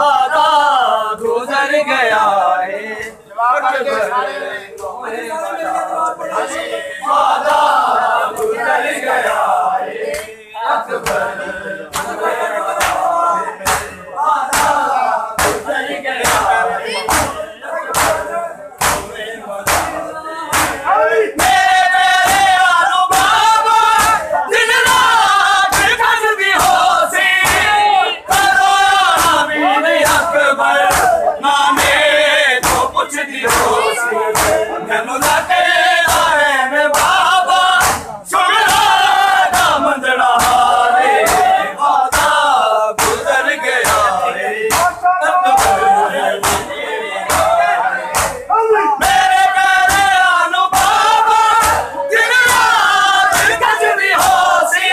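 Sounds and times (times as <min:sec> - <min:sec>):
men chanting a lament: 0:00.0 - 0:54.9
hands slapping bare chests: 0:10.1 - 0:10.3, 0:11.0 - 0:11.3, 0:11.9 - 0:20.8, 0:21.4 - 0:26.0, 0:26.6 - 0:41.5, 0:42.1 - 0:42.4, 0:43.0 - 0:46.7, 0:47.3 - 0:54.6.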